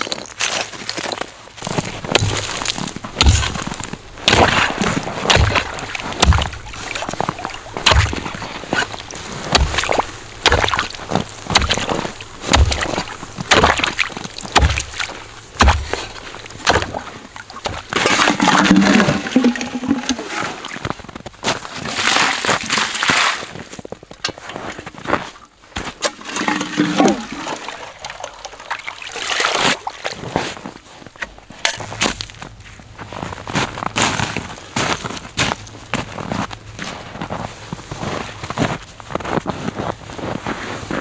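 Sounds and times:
boot crunching slushy ice: 0.0 - 31.0
ice chisel chopping with splash: 2.1 - 20.4, 25.9 - 29.8.

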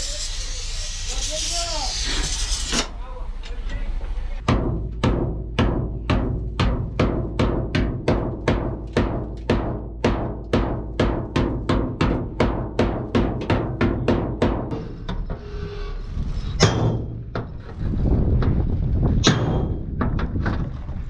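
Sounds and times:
hammer striking steel: 4.4 - 15.6, 16.6 - 17.6, 19.2 - 20.1.

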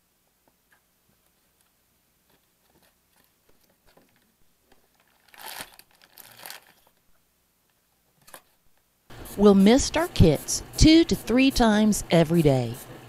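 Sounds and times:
cardboard rustling and scraping: 2.2 - 7.0.

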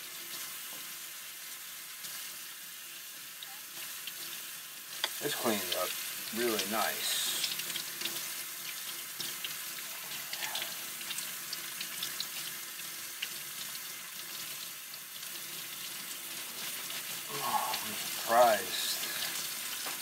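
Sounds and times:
tap water running into sink: 5.0 - 20.0.

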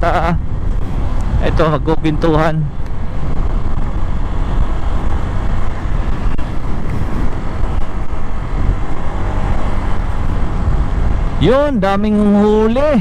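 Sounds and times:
wind rush and road noise: 0.0 - 13.0.

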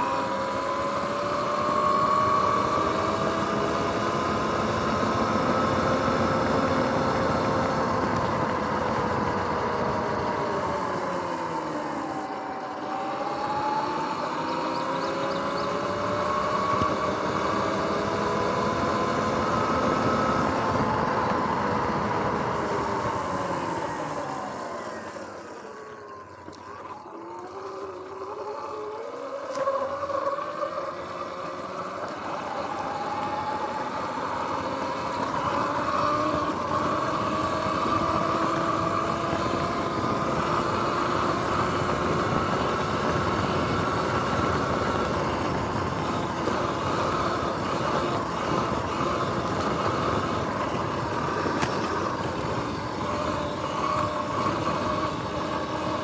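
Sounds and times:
electric motor whining: 0.0 - 56.0
tyre and wind noise: 26.4 - 56.0.

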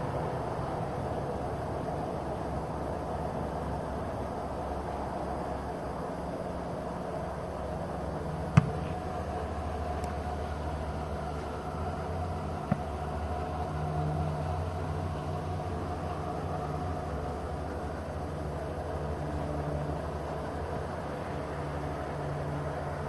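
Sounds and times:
foot kicking football: 8.5 - 9.0.

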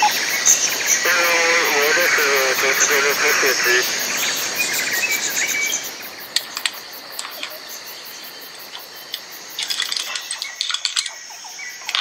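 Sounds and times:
insect hiss: 0.0 - 12.0
sharp clicks: 6.3 - 7.6.

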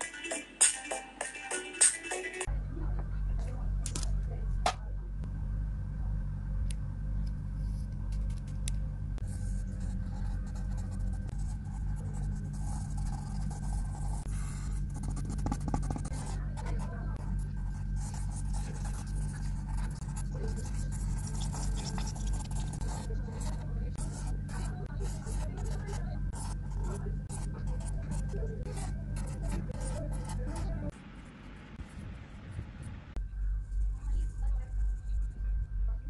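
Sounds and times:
steady low hum: 2.4 - 36.0
pencil scratching on paper: 9.2 - 30.9.

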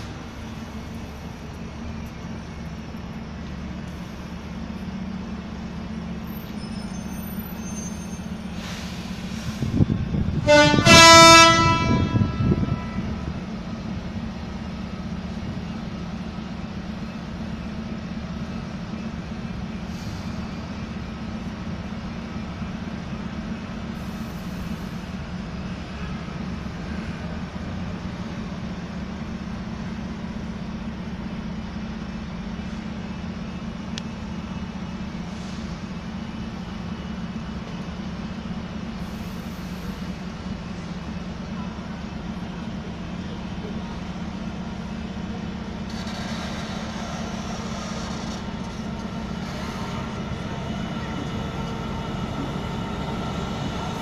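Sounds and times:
engine idling: 12.6 - 54.0.

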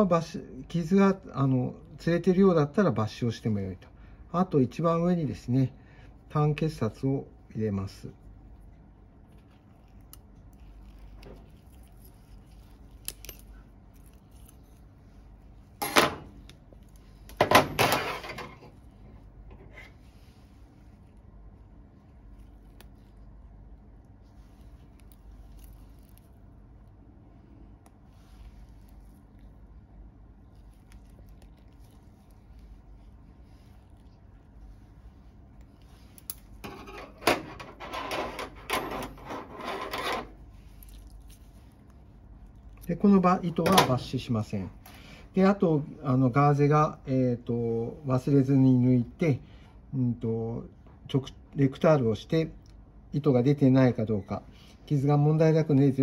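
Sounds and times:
gloved hands rubbing silicone: 18.8 - 36.7.

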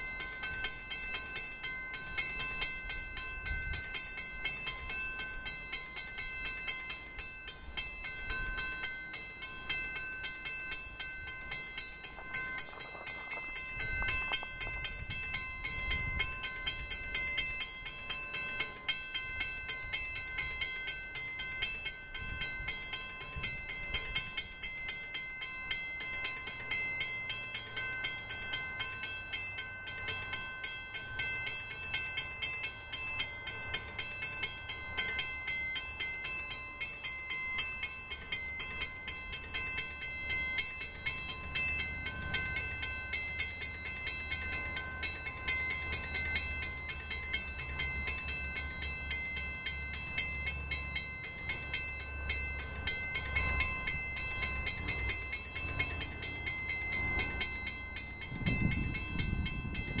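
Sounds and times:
crossing bell ringing: 0.0 - 60.0
low rumble of approaching train: 0.0 - 60.0.

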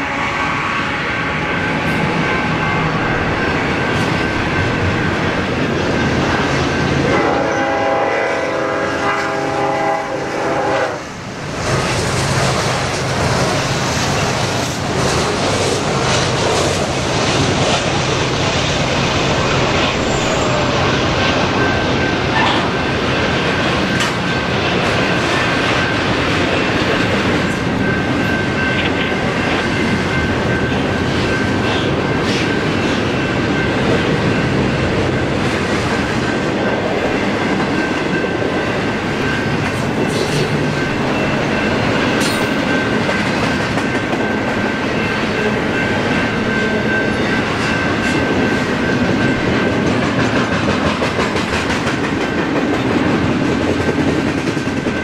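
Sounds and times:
train horn: 0.0 - 3.1, 7.0 - 11.2, 19.9 - 22.8
freight train wheels on rails: 0.0 - 55.0.

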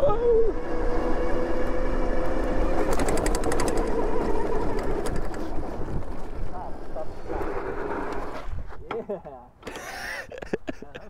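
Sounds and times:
electric motor whining: 0.0 - 8.5
tyres and wind rumble: 0.0 - 11.0
rapid clicks: 2.8 - 5.4.

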